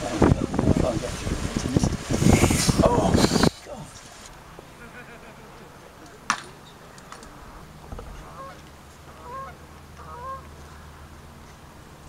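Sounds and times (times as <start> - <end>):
low rumble of wind: 0.0 - 12.0
goose honking: 8.2 - 10.5.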